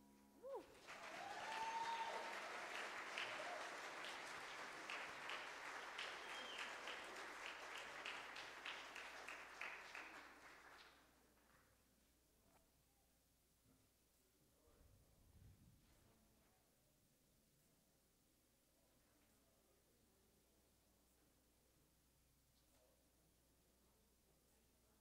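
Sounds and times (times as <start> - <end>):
congregation applauding: 0.5 - 11.7.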